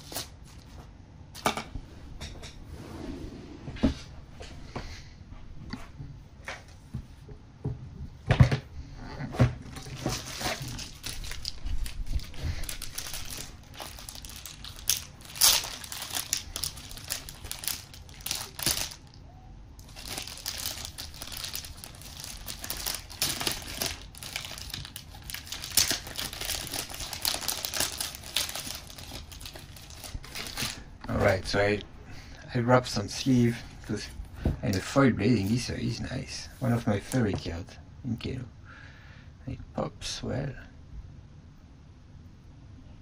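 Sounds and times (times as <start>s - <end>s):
plastic sleeves crinkling: 9.7s - 19.2s, 19.8s - 31.5s.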